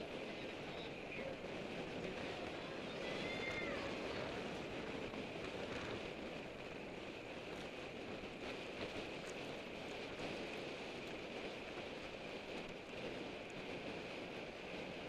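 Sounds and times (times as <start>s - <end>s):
road noise: 0.0s - 15.0s
rushing wind: 0.0s - 15.0s.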